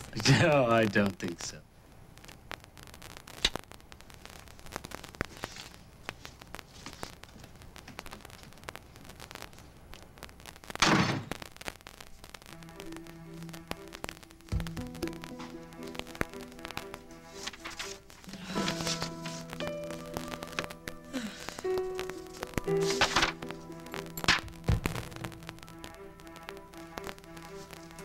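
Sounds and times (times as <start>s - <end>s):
faint crackle: 0.0s - 28.0s
soft sustained music: 12.5s - 28.0s.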